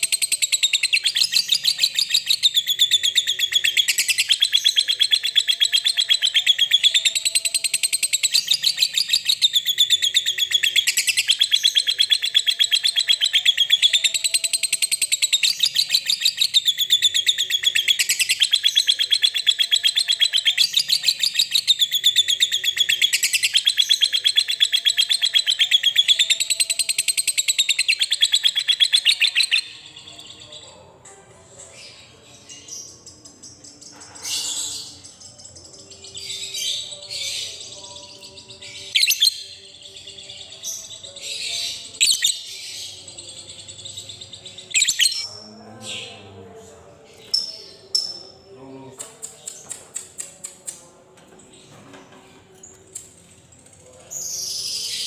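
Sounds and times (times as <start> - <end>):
lovebird chattering trill: 44.7 - 45.3.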